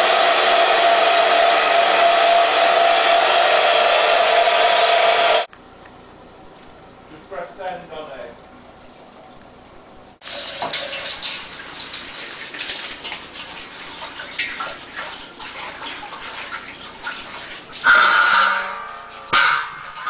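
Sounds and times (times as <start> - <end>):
water splashing into a vessel: 5.5 - 20.0.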